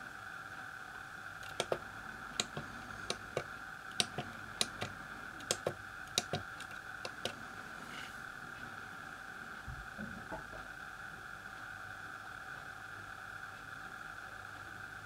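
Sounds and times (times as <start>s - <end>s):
calculator keys clicking: 1.4s - 1.8s, 2.4s - 7.4s.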